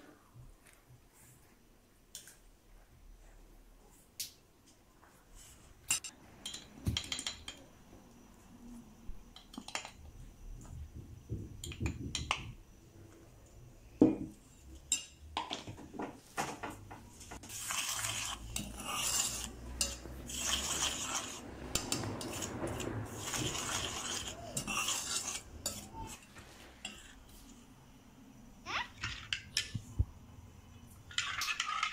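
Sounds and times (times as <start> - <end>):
spoon scraping and stirring: 17.2 - 27.7, 30.8 - 31.9.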